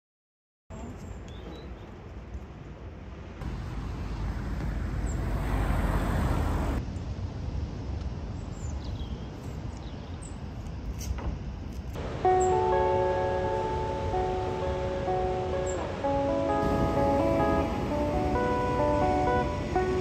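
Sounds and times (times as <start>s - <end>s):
music: 12.1s - 20.0s.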